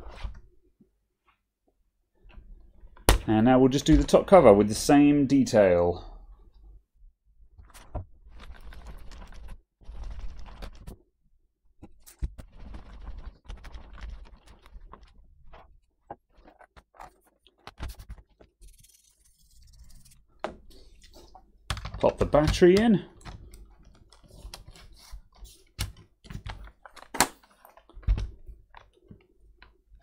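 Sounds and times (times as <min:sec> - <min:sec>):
cloth rubbing plastic laptop lid: 0:08.3 - 0:10.9, 0:12.0 - 0:15.6, 0:16.4 - 0:21.3.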